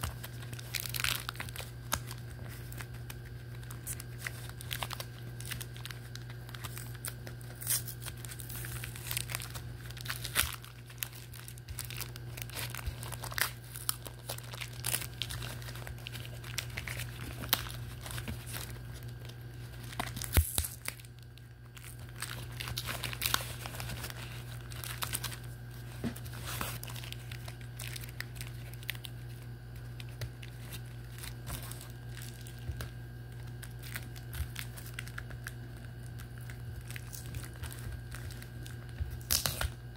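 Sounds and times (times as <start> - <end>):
packing tape peeling off cardboard: 0.0 - 21.1, 21.8 - 25.4.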